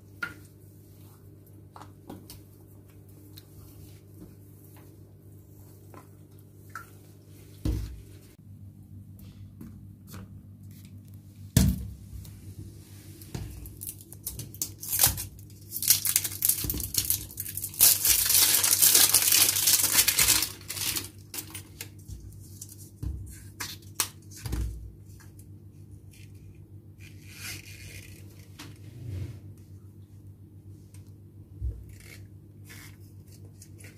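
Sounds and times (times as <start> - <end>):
plastic rustling: 13.1 - 22.8
plastic wrap tearing and crinkling: 13.6 - 22.8.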